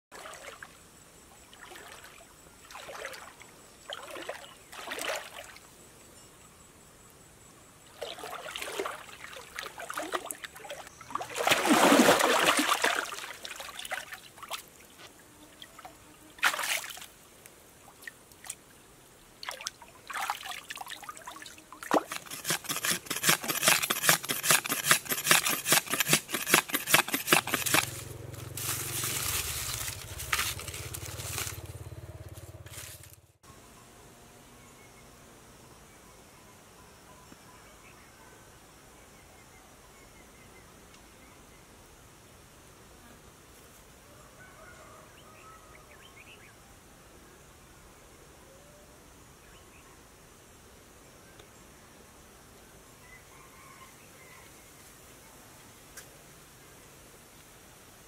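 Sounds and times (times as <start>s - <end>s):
stream water splashing: 0.1s - 0.8s, 1.5s - 5.7s, 7.9s - 18.7s, 19.4s - 23.0s.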